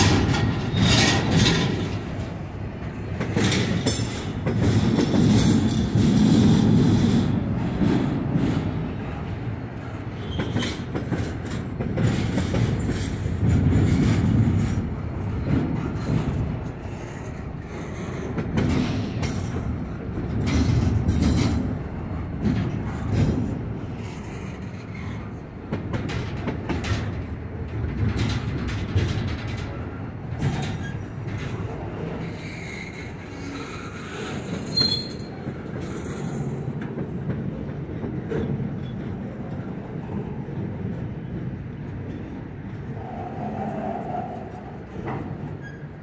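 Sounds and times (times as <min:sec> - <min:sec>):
wheels clicking and clattering: 0:00.0 - 0:02.4
freight train wheels rumbling: 0:00.0 - 0:46.0.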